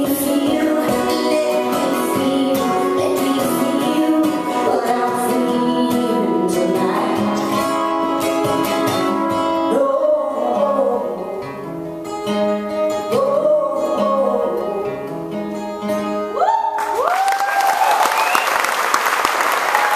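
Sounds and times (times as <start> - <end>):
woman singing: 0.0 - 11.7, 12.9 - 15.4
strummed acoustic guitar: 0.0 - 16.4
audience applause and cheering: 16.4 - 19.9.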